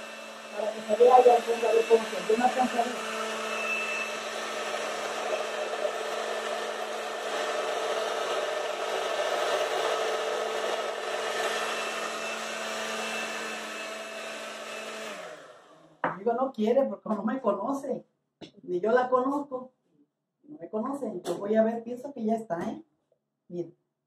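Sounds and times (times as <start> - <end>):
blender motor humming: 0.0 - 15.9.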